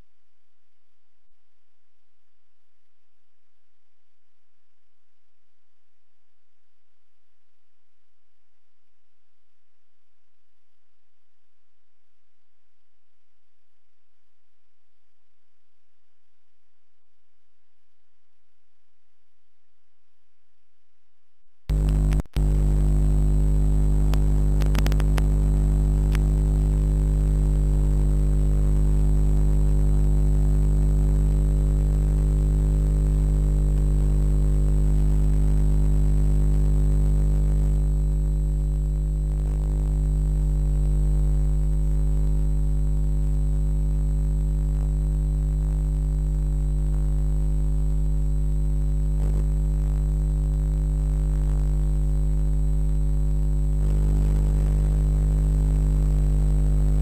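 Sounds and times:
electrical hum: 0:21.7 - 0:57.0.

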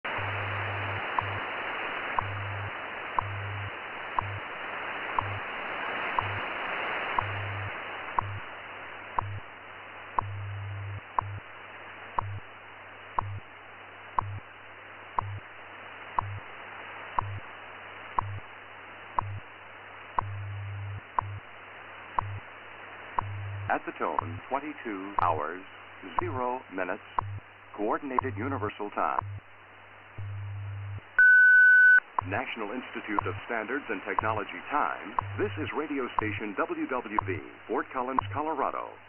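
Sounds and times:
pulsing low hum: 0:00.0 - 0:05.6, 0:06.2 - 0:06.6, 0:07.2 - 0:16.6, 0:17.2 - 0:18.6, 0:19.2 - 0:22.6, 0:23.2 - 0:24.5, 0:27.1 - 0:31.2, 0:35.2 - 0:35.6
static hiss: 0:00.1 - 0:39.0.

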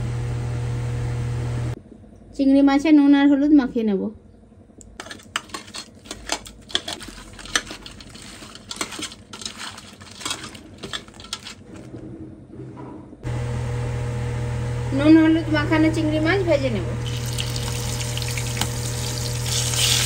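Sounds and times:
prawns clicking in metal bowl: 0:05.0 - 0:11.6.

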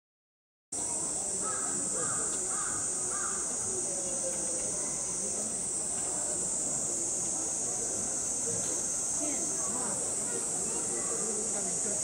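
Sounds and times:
insect drone: 0:00.8 - 0:12.0
bird cawing: 0:01.4 - 0:03.5.

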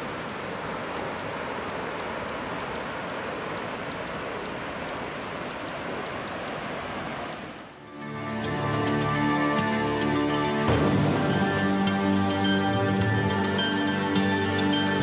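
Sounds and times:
faint sharp high ticks: 0:00.0 - 0:07.5
steady rushing outdoor noise: 0:00.0 - 0:15.0.

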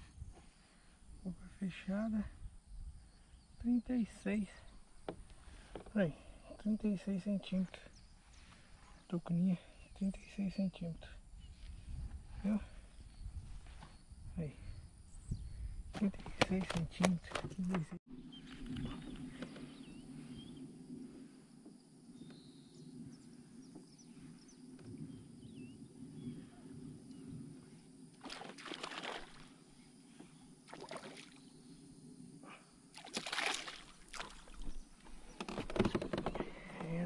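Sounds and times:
water splashing around kayak: 0:28.2 - 0:29.6, 0:32.9 - 0:35.7.

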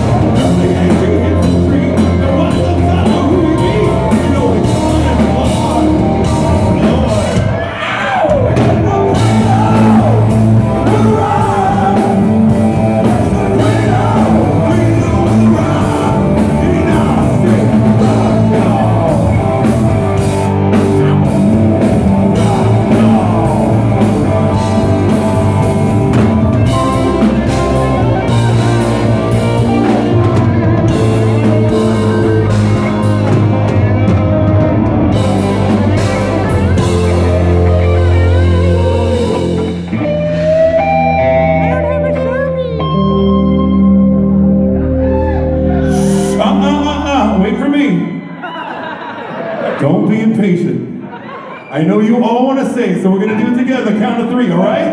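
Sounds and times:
man singing: 0:00.0 - 0:33.9, 0:35.1 - 0:42.0, 0:45.7 - 0:48.1
live rock band playing: 0:00.0 - 0:49.7.

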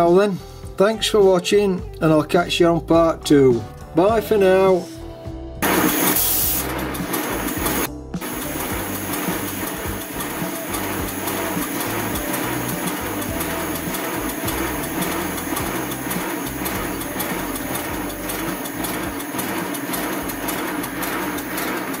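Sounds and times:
model steam locomotive clatter: 0:06.6 - 0:22.0.

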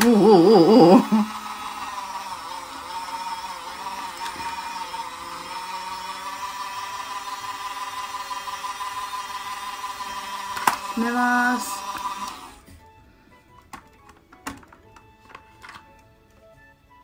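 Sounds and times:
small electric motor whirring: 0:00.0 - 0:12.7.

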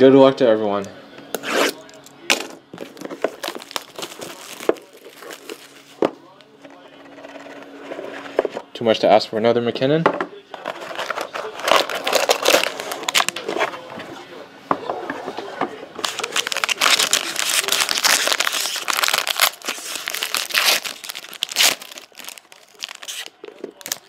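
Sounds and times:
foil wrapper crinkling and tearing: 0:02.8 - 0:05.8, 0:10.6 - 0:13.5, 0:16.0 - 0:24.0.

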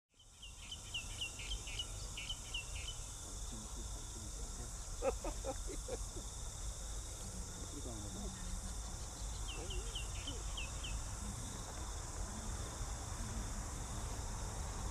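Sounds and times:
bird chirping: 0:00.2 - 0:03.6, 0:04.2 - 0:12.0
high insect drone: 0:00.2 - 0:14.9
lower-pitched bird calls: 0:08.4 - 0:11.6.

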